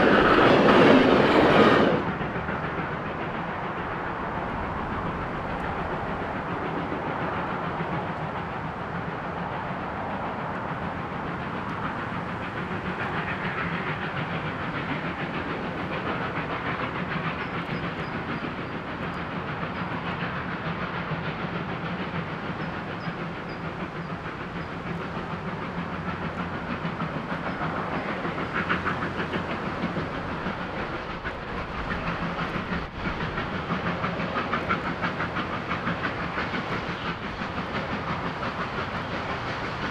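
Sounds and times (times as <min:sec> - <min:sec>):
steam locomotive chuffing: 0:00.0 - 0:39.9.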